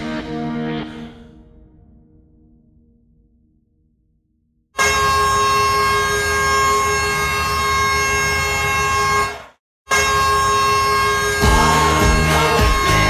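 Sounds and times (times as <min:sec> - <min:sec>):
hockey goal horn: 0:04.7 - 0:13.0.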